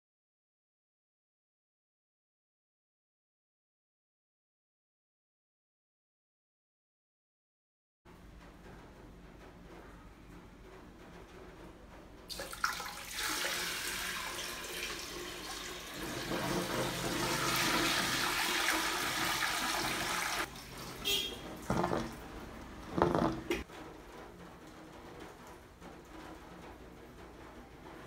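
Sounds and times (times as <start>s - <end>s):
water rushing into toilet bowl: 12.3s - 23.7s.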